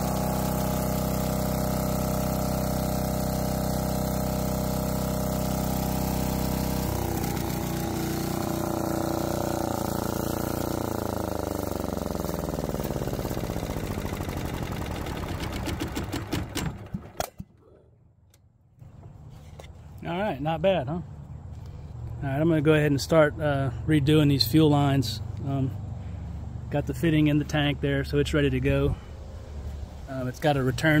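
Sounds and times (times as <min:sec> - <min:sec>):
engine winding down: 0:00.0 - 0:17.4
diesel generator running: 0:00.0 - 0:31.0.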